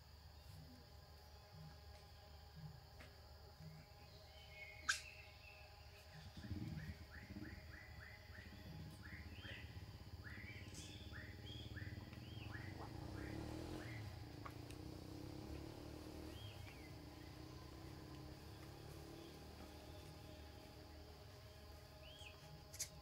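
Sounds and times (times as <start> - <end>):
high chirping calls: 4.1 - 23.0
sharp click: 4.9 - 5.1.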